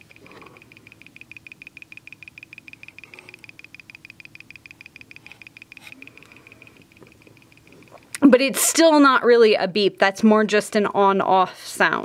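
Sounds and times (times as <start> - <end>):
fast high-pitched piezo clicks: 0.0 - 8.2.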